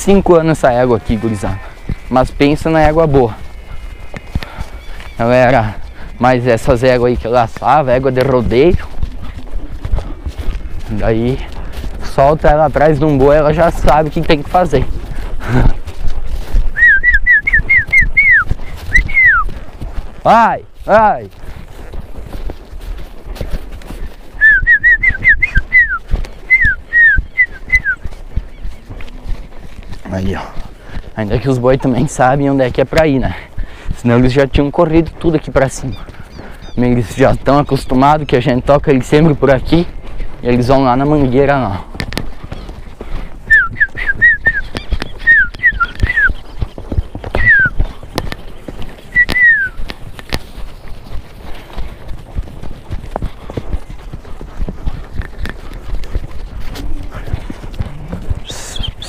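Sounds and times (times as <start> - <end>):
horse hooves clopping: 0.0 - 59.0
person whistling short notes: 16.7 - 19.5, 24.4 - 28.0, 43.5 - 46.4, 47.4 - 47.8, 49.1 - 49.8
short falling whistles: 49.2 - 49.8.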